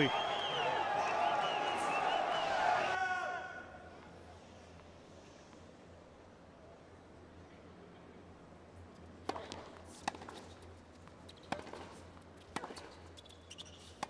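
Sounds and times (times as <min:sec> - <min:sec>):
low arena hum: 0:00.0 - 0:14.0
shoe squeak: 0:12.8 - 0:14.0.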